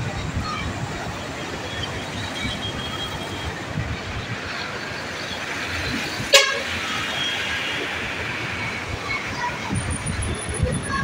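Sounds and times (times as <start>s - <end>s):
wind rushing: 5.6s - 11.0s.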